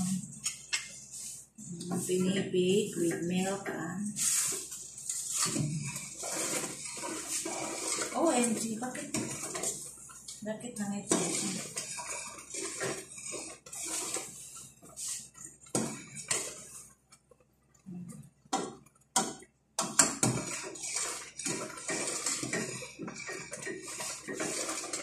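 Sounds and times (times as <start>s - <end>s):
metal spoon scraping a pot: 0.0s - 16.9s, 19.8s - 25.0s.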